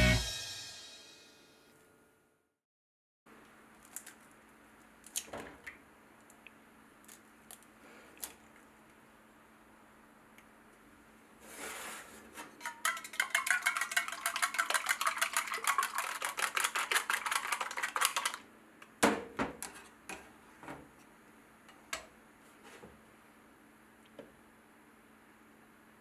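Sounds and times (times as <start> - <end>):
chopsticks clicking against metal cup: 12.7 - 18.4.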